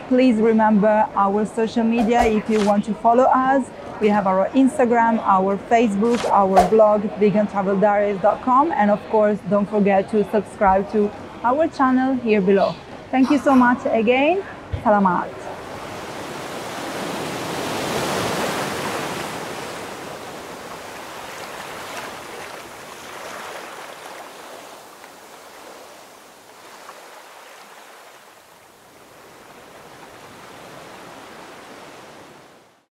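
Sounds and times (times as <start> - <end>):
sea waves washing up beach: 15.5 - 32.7.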